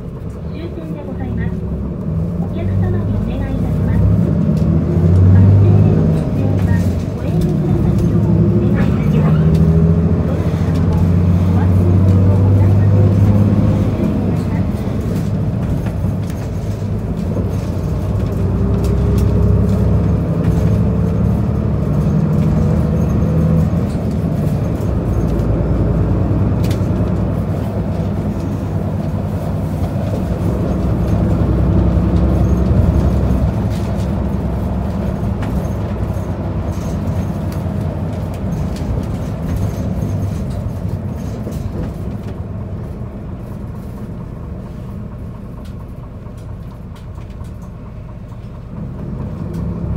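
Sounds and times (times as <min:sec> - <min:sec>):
bus engine and road noise: 0:00.0 - 0:49.9.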